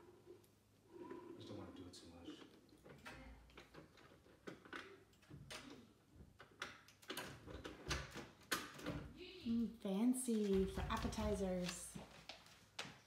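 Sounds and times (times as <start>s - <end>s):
folding table clicks and knocks: 3.0s - 9.1s.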